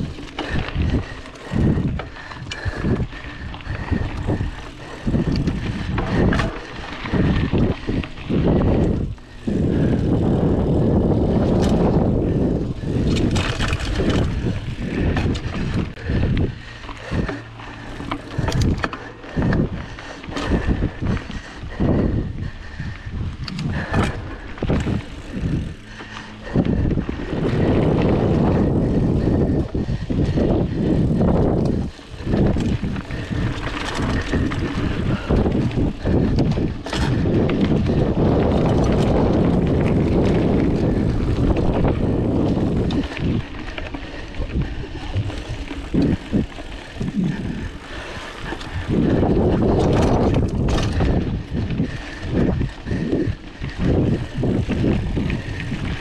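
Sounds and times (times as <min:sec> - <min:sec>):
mountain bike rattling on dirt trail: 0:00.0 - 0:56.0
wind buffeting microphone: 0:00.0 - 0:56.0.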